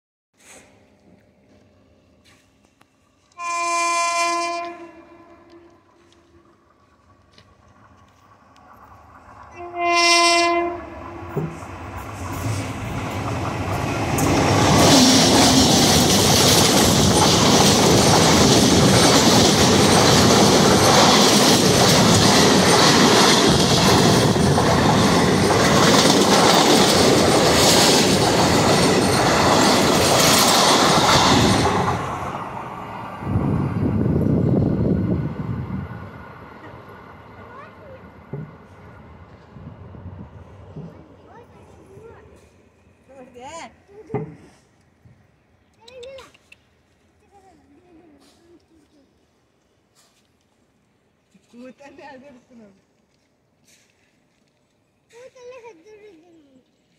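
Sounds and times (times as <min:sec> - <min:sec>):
train horn blast: 0:03.3 - 0:06.6, 0:09.5 - 0:11.4
train wheels clattering over rails: 0:11.2 - 0:32.3.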